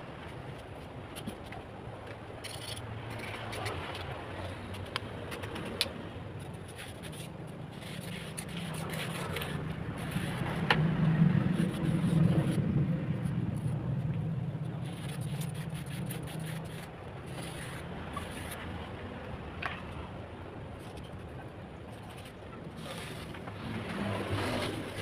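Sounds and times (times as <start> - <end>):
low engine hum: 0.0 - 25.0
wooden strip scraping wet mortar: 14.8 - 18.6.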